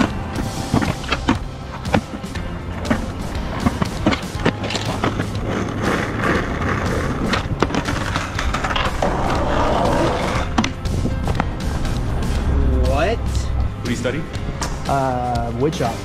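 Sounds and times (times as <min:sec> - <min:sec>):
skateboard wooden clacks: 0:00.0 - 0:11.5
skateboard wheels rolling on concrete: 0:00.0 - 0:16.0.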